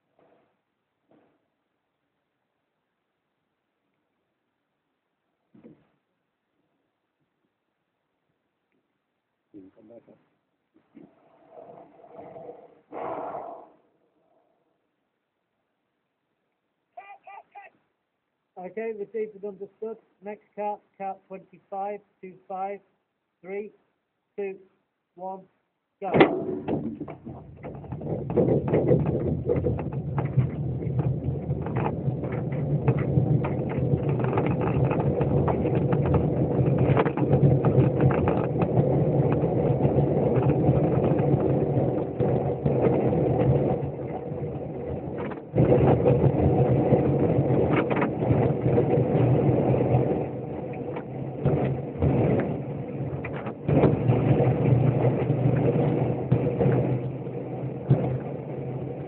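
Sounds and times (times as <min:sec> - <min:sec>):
wind noise: 0:26.4 - 0:59.0.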